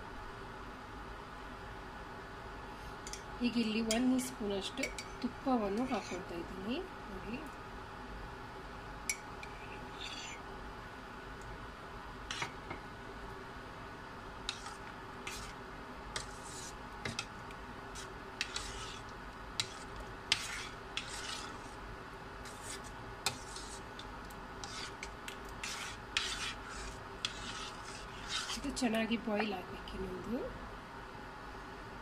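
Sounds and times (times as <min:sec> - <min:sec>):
spoon scraping a steel pot: 0:05.7 - 0:06.3, 0:09.4 - 0:10.4, 0:12.3 - 0:12.6, 0:14.4 - 0:15.6, 0:16.2 - 0:17.3, 0:17.9 - 0:21.8, 0:22.4 - 0:24.0, 0:24.6 - 0:28.8.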